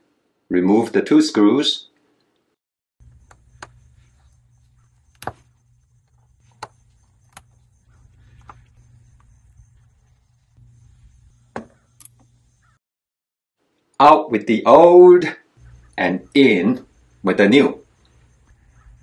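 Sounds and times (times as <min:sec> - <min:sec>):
low steady hum: 0:03.0 - 0:12.8.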